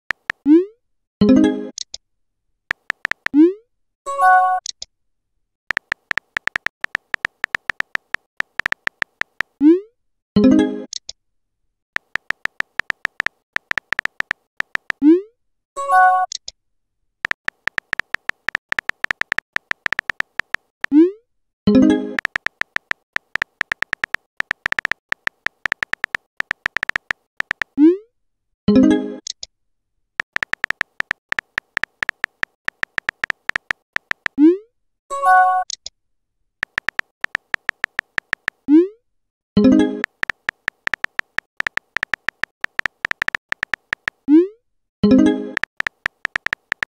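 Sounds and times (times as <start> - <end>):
keyboard tapping clicks: 0.1 - 0.4, 2.7 - 3.4, 5.7 - 9.6, 12.0 - 15.0, 17.2 - 21.0, 22.0 - 27.8, 30.2 - 34.4, 36.6 - 38.7, 39.8 - 44.3, 45.5 - 46.9.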